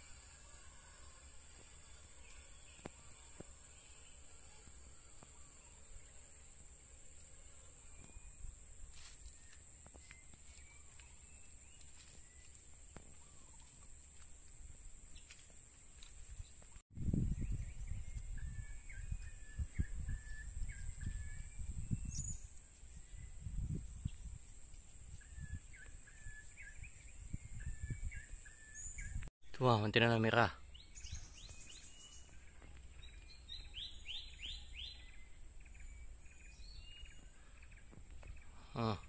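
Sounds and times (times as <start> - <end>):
high-pitched insect drone: 0.0 - 10.6
bird chirping: 30.0 - 39.0.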